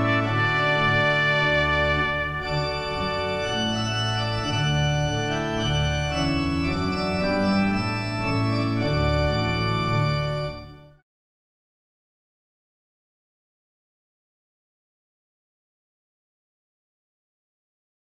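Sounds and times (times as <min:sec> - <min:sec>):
organ music: 0:00.0 - 0:11.0.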